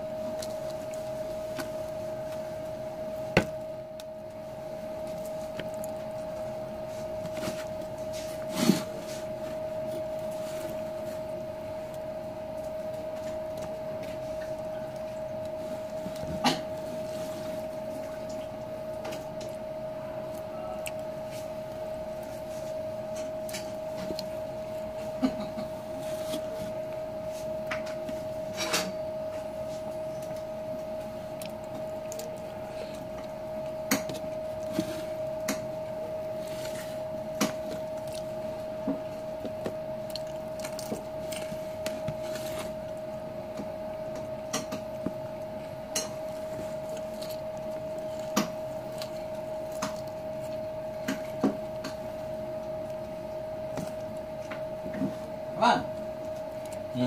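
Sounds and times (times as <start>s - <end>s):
chewing and mouth sounds: 0.2s - 27.0s, 29.8s - 55.4s.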